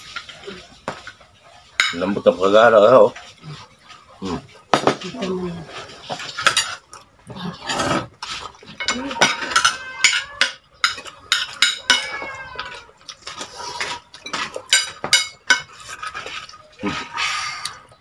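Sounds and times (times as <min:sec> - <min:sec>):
cutlery clinking on a plate: 0:01.8 - 0:02.1, 0:08.7 - 0:16.5.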